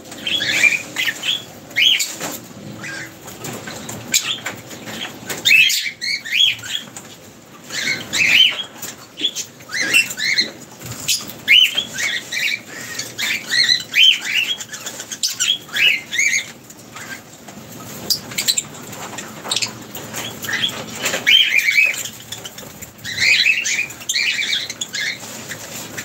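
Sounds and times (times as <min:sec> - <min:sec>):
lovebirds chirping: 0:07.6 - 0:17.3, 0:17.9 - 0:26.0.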